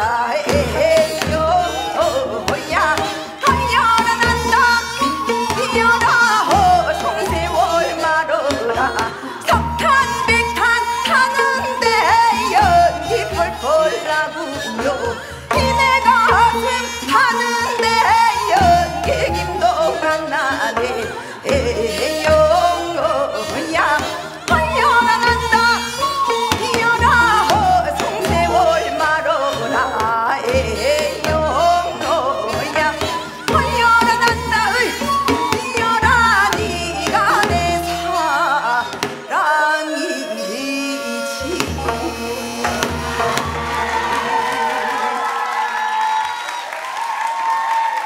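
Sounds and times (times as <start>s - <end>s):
woman singing folk song: 0.0s - 45.2s
instrumental accompaniment: 0.0s - 45.5s
drum accompaniment: 0.4s - 7.6s, 41.4s - 45.3s.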